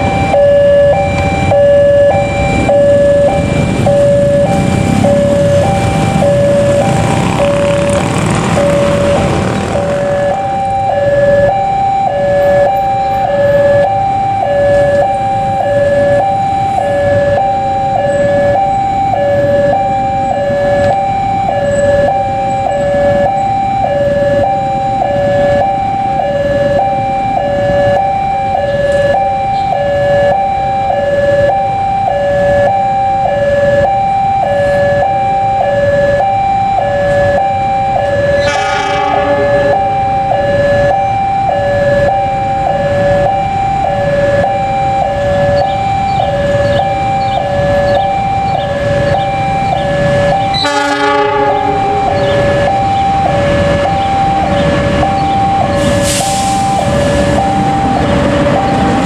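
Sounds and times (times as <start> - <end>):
level-crossing two-tone alarm: 0.0 - 59.0
train horn blast: 38.3 - 40.2, 50.5 - 52.8.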